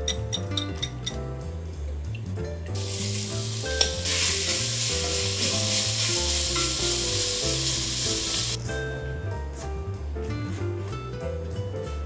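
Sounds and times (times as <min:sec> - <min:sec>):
mushrooms sizzling in oil: 0:02.8 - 0:08.6.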